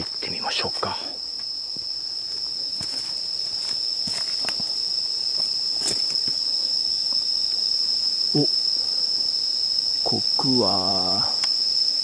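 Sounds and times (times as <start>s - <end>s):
insects trilling: 0.0s - 12.0s
footsteps on leaf litter: 2.8s - 4.8s, 5.4s - 6.4s.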